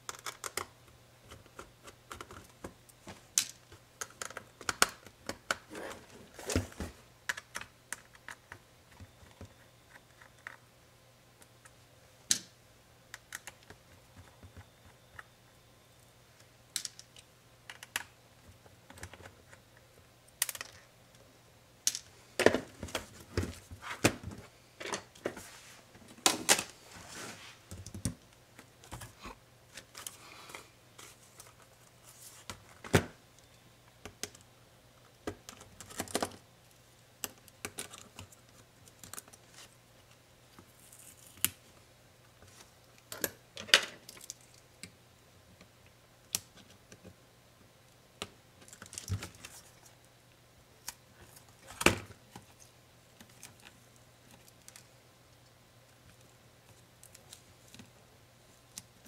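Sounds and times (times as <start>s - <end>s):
laptop parts clicking and knocking: 3.4s - 5.7s.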